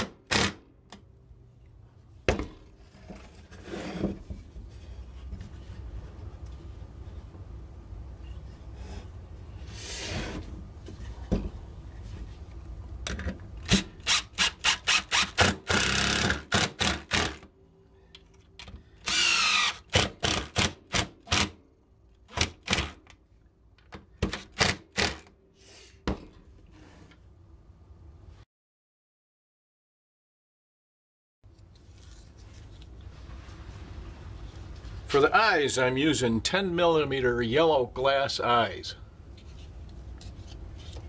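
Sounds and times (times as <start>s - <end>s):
impact driver whining: 19.0s - 21.5s.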